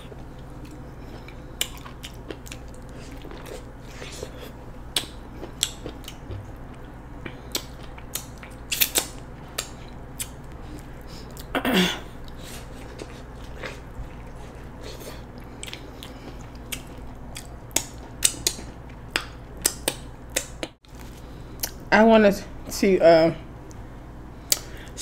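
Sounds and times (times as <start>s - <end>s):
wet chewing and mouth clicks: 0.4s - 11.5s, 12.2s - 20.8s.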